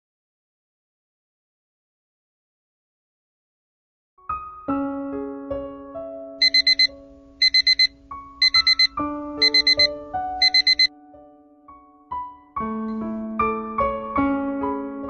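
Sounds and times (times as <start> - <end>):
soft piano music: 4.2 - 15.0
electronic alarm beeping: 6.4 - 10.9.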